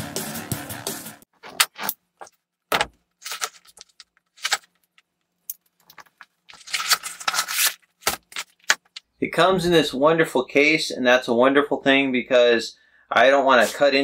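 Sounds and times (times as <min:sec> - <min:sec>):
cardboard rustling: 0:01.4 - 0:04.8, 0:05.9 - 0:09.0.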